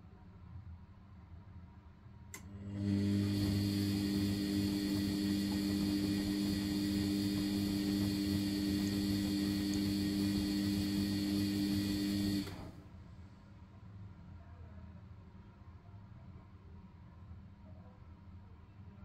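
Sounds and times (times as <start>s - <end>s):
washing machine motor hum: 2.4s - 12.8s.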